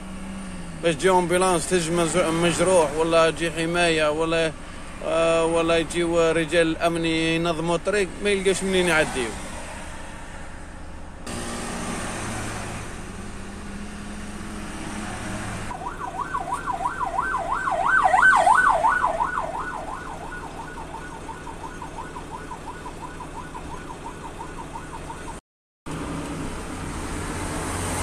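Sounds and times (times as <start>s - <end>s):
traffic noise: 0.0s - 28.0s
truck engine: 0.0s - 28.0s
siren yelping: 15.7s - 25.4s.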